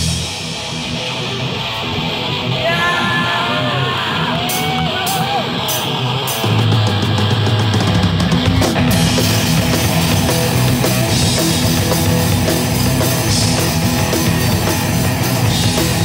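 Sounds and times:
heavy metal band playing: 0.0 - 16.0.

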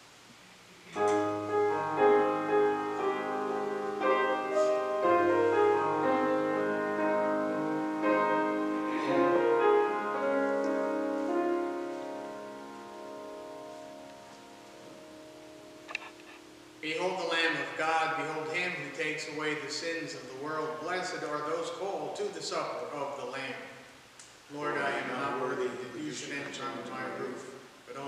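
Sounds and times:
slow piano music: 1.0 - 19.2.

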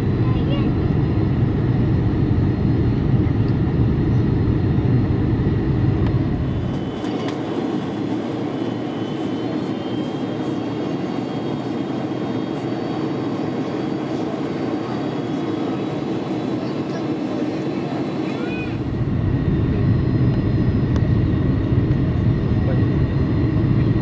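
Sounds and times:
airliner cabin roar: 0.0 - 24.0
faint high whine: 5.6 - 24.0
deep low rumble: 18.8 - 24.0.

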